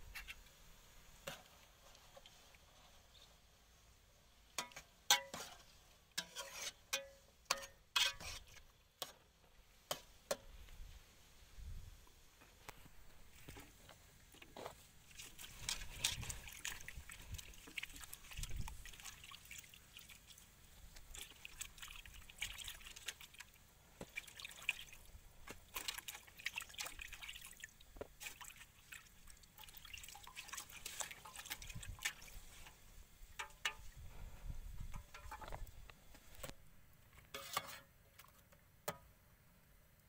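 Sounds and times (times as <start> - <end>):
water splashing and trickling: 13.3 - 34.2.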